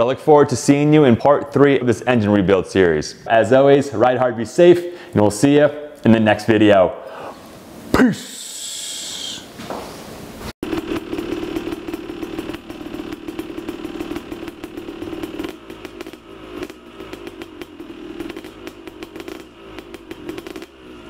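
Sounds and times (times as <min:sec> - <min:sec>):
motorcycle engine running: 0:10.6 - 0:21.0.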